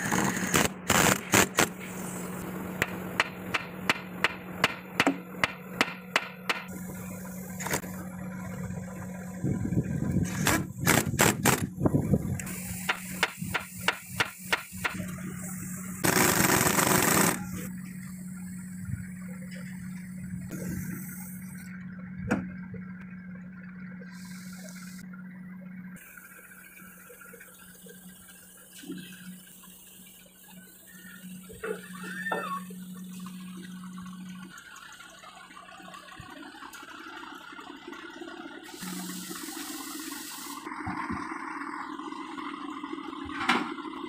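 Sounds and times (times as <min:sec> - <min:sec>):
low hum: 0:00.0 - 0:44.0
scattered knocks: 0:03.2 - 0:06.7
impact wrench rattling bursts: 0:16.0 - 0:17.5.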